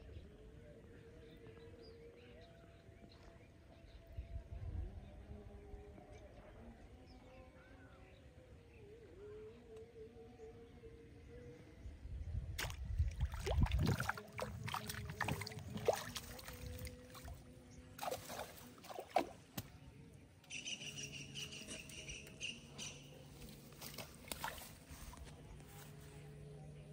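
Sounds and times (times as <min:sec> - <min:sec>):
rustling and splashing water: 0:12.6 - 0:19.8, 0:23.3 - 0:26.2.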